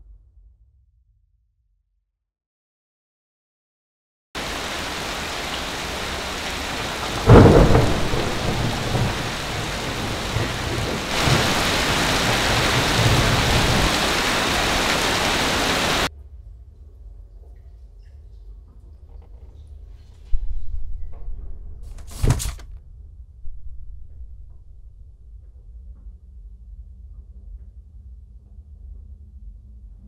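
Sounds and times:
rain falling: 4.4s - 16.1s
thunder clap rumbling: 4.4s - 16.1s.

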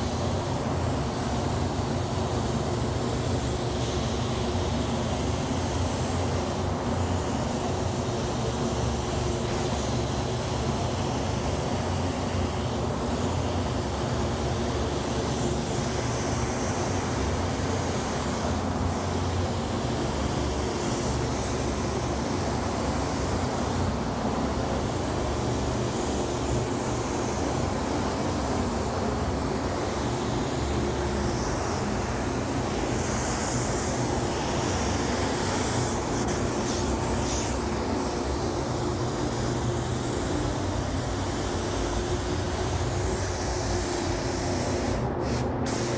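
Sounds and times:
spray gun hissing: 0.0s - 45.9s
ventilation fans running: 0.0s - 45.9s.

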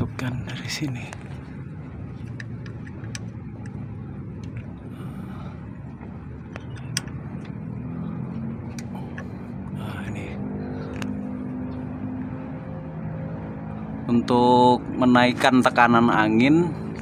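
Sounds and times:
diesel engine idling: 0.0s - 16.7s
allen key metallic clicks: 6.5s - 7.6s.

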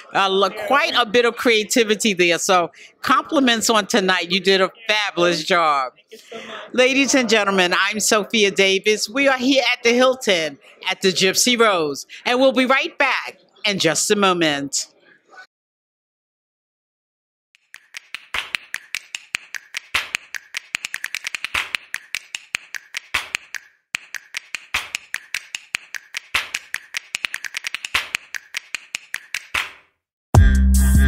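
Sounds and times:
rapid sharp clicks: 17.6s - 29.8s.

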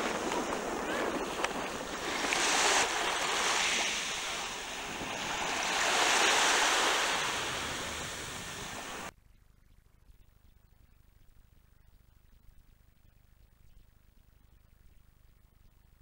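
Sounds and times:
small sea waves washing: 0.0s - 9.1s
wind on microphone: 0.0s - 9.1s.

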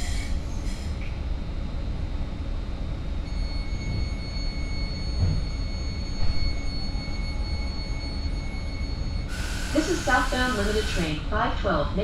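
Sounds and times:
train running rumble: 0.0s - 7.6s.

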